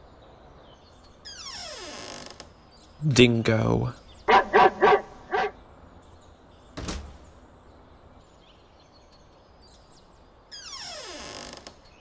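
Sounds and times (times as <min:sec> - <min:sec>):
dog barking: 0:04.3 - 0:05.6.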